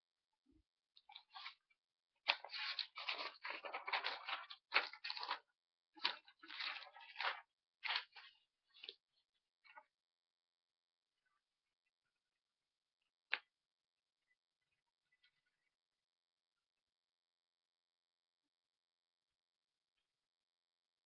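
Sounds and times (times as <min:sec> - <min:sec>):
rustling and crunching handling noise: 0:02.2 - 0:09.8.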